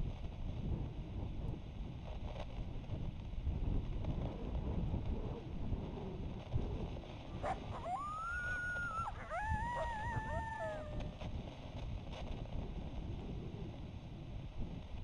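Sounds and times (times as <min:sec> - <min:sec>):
wind buffeting microphone: 0:00.0 - 0:15.0
animal wavering high calls: 0:07.4 - 0:11.2.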